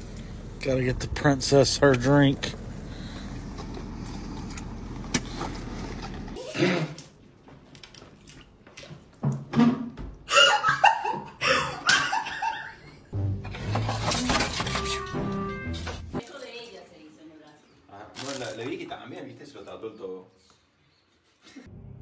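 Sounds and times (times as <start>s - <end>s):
vehicle engine hum: 0.0s - 6.4s
women laughing: 10.3s - 13.1s.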